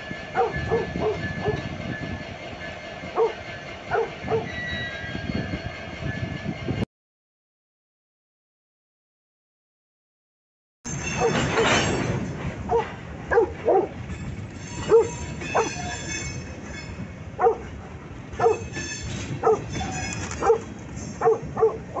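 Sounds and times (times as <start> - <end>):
freight train rolling past: 0.0 - 6.8, 10.9 - 22.0
dog barking in sharp yelps: 12.7 - 13.9, 14.9 - 15.7, 17.4 - 17.6, 18.4 - 18.6, 19.4 - 19.7, 20.4 - 20.6, 21.2 - 22.0.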